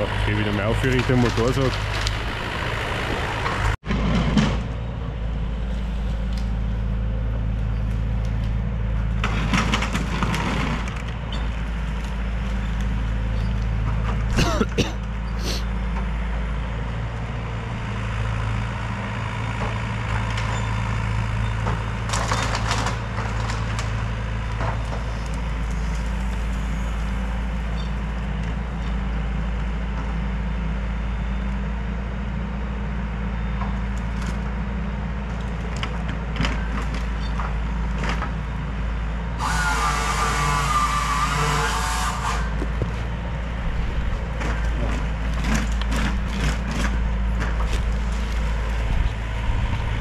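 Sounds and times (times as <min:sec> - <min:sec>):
machine engine running steadily: 0:00.0 - 0:50.0
loud rushing noise: 0:01.8 - 0:04.6.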